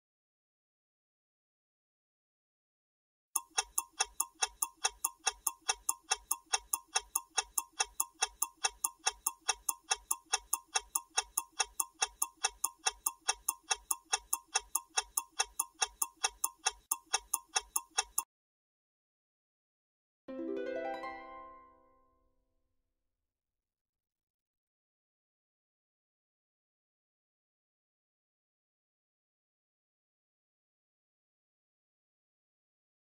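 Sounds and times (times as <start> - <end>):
clock-like timer ticking: 3.4 - 18.3.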